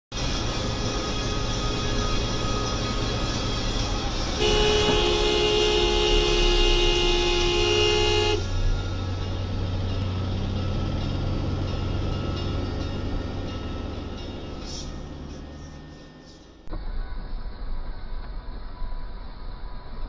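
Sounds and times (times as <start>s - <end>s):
engine and road drone inside car: 0.2s - 20.0s
car horn: 4.2s - 8.8s.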